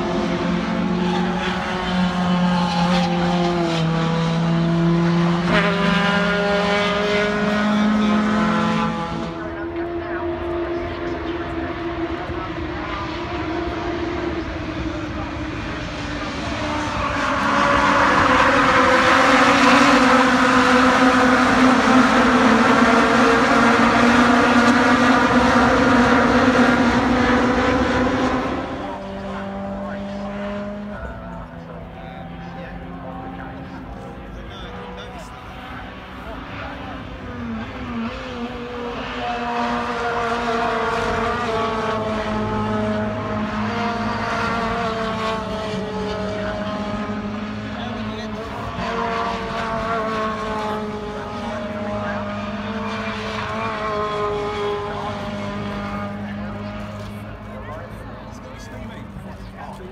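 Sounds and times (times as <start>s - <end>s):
loud engine noise: 0.0s - 59.9s.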